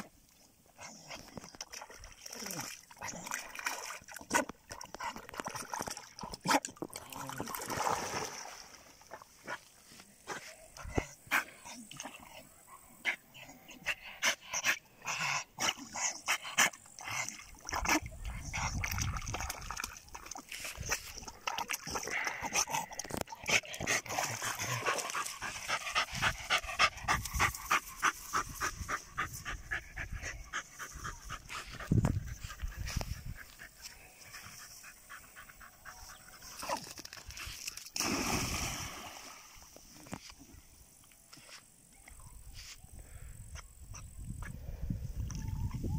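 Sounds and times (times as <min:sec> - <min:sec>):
dog splashing into water: 0:07.0 - 0:09.1, 0:36.6 - 0:39.7.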